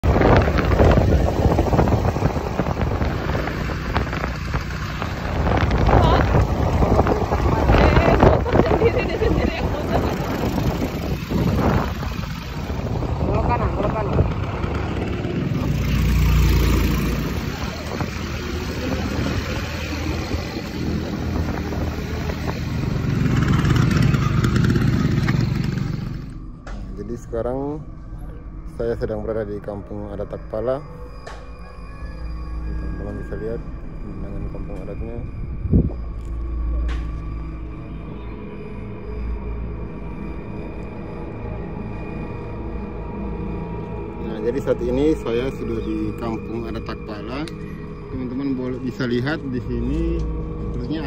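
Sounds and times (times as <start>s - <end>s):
wind buffeting microphone: 0.0s - 26.3s, 35.2s - 36.2s
motor scooter engine running: 0.1s - 26.4s.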